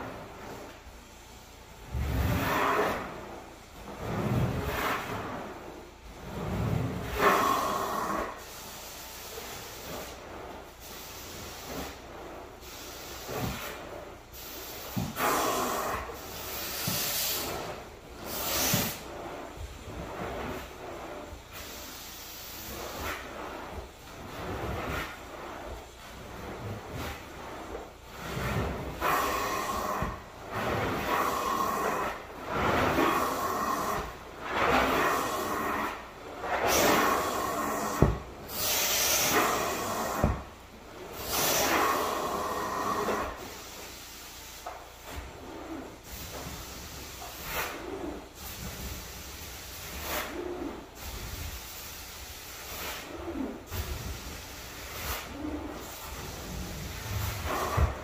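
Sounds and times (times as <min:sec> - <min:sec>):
cleaning tool hissing over rug: 0:00.0 - 0:58.0.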